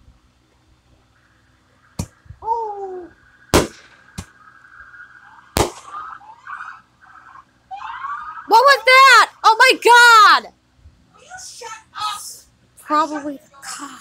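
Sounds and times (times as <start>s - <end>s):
fireworks exploding: 3.4s - 6.5s
siren wailing: 4.3s - 9.4s.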